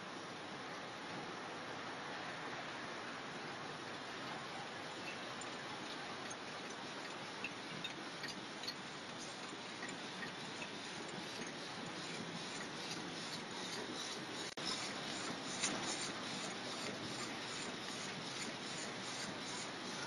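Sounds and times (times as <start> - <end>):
light mechanical ticks: 5.0 - 20.0
packing machines hissing: 7.8 - 20.0.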